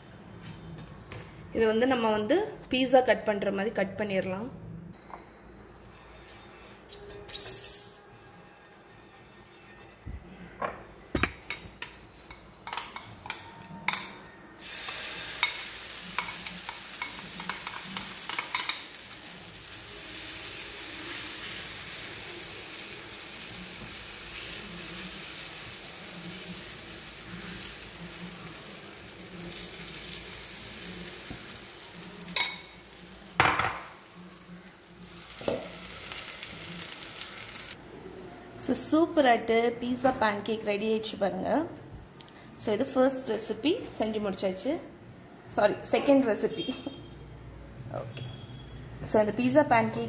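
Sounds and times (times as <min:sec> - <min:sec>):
batter sizzling on hot pan: 0:14.6 - 0:37.8.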